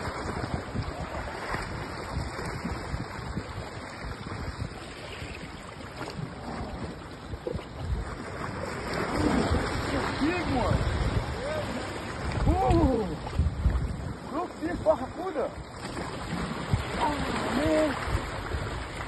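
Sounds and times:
wind buffeting microphone: 0:00.0 - 0:19.0
surf breaking on rocks: 0:08.0 - 0:19.0.

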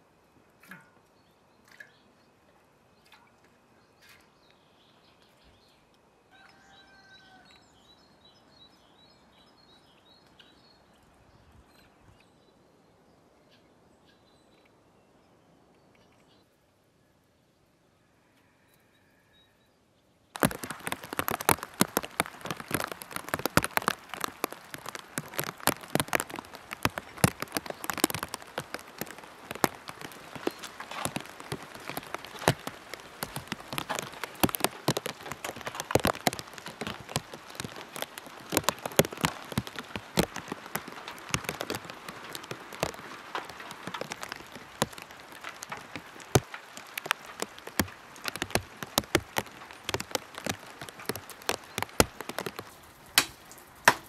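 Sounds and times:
rain falling: 0:20.3 - 0:54.0
drops hitting hard surfaces: 0:20.4 - 0:54.0.

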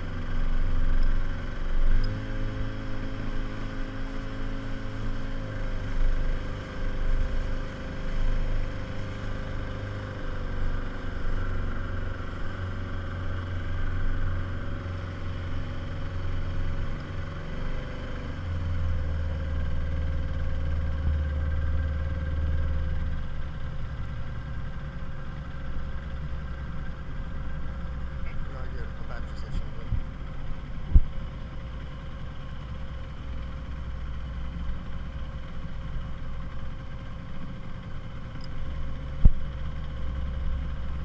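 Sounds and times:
outboard motor running: 0:00.0 - 0:41.0.

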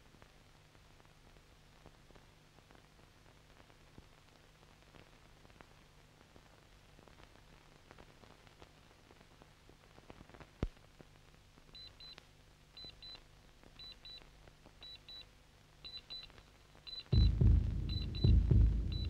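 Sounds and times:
film hiss and crackle: 0:00.0 - 0:19.0
loud low pulsing sound: 0:17.2 - 0:19.0
short high electronic beeps: 0:17.2 - 0:19.0.

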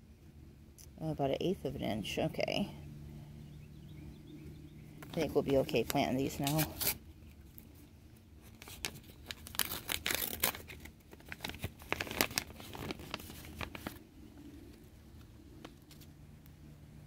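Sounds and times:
seed packet crinkling and tearing: 0:05.0 - 0:07.8, 0:08.4 - 0:14.1.

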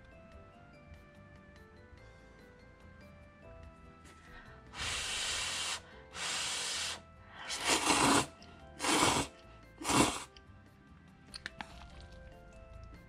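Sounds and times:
soft background music: 0:00.0 - 0:13.0
noodle slurping: 0:04.8 - 0:10.4.

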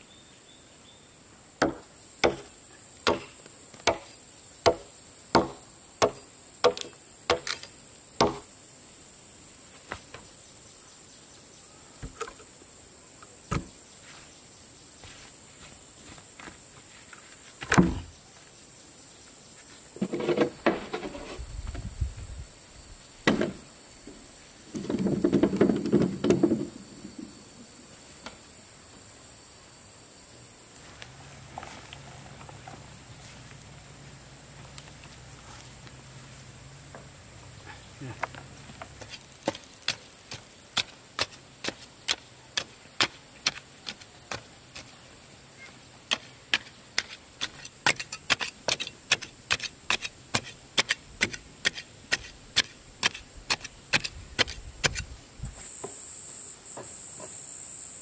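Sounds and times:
high insect drone: 0:00.0 - 0:58.0
rhythmic chopping strikes: 0:04.7 - 0:07.6.

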